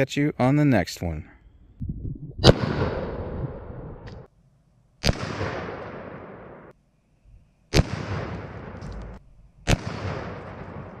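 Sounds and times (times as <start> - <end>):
rifle shots with echo: 2.4 - 3.7, 5.0 - 6.7, 7.7 - 9.1, 9.7 - 11.0.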